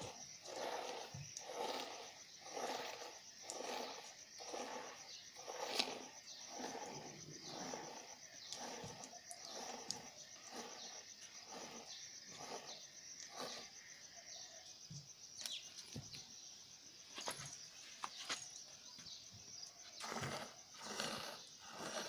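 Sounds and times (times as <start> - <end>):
high insect trill: 0.0 - 22.0.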